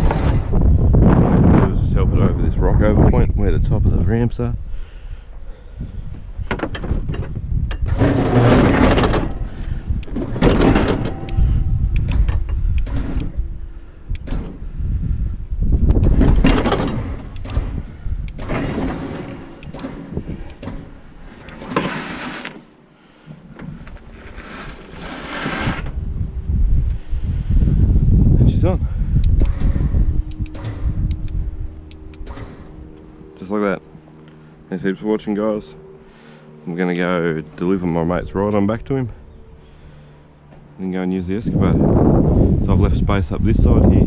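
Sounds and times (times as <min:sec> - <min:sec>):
electric winch hauling: 0:07.8 - 0:28.2, 0:28.8 - 0:42.6.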